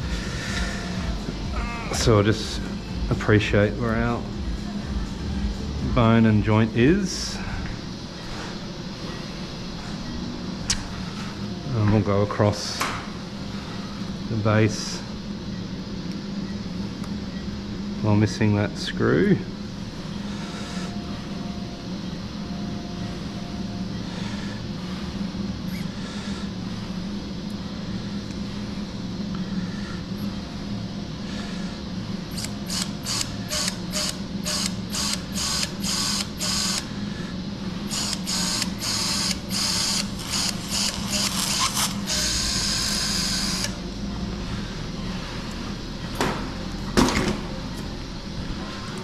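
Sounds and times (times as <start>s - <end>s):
power drill boring bone: 32.4s - 36.8s, 37.9s - 43.8s.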